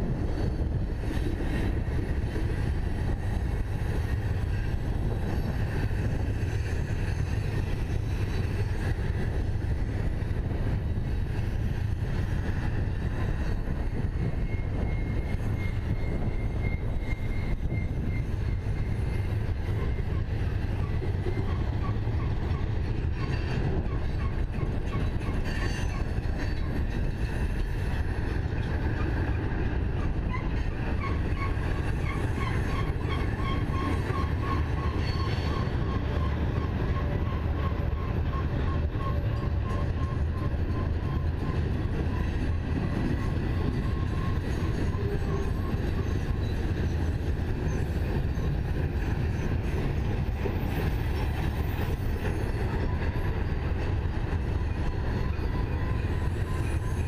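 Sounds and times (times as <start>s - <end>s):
freight train rumbling on rails: 0.0s - 57.0s
high wheel squeal: 13.6s - 26.8s, 30.0s - 48.6s, 54.6s - 57.0s.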